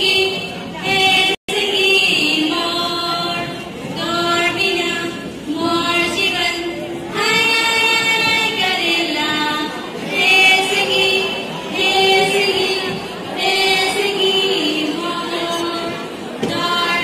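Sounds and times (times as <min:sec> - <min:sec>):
girls singing together: 0:00.0 - 0:17.0.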